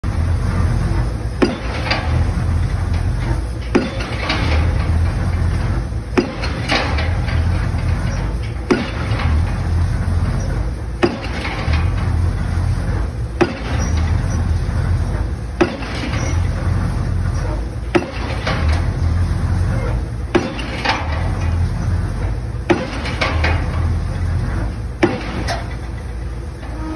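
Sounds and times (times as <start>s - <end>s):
engine running: 0.0s - 26.9s
pile driver hammer striking: 1.4s - 2.2s, 3.7s - 5.2s, 6.1s - 7.6s, 8.6s - 9.5s, 11.0s - 12.2s, 13.4s - 14.1s, 15.6s - 16.5s, 17.9s - 18.9s, 20.3s - 22.0s, 22.7s - 23.8s, 25.0s - 25.7s.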